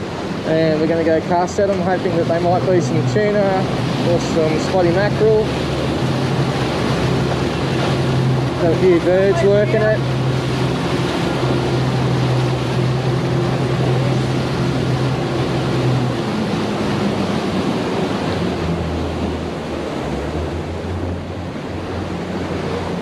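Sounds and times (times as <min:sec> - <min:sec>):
boat engine running: 0:00.0 - 0:23.0
water rushing along hull: 0:00.0 - 0:23.0.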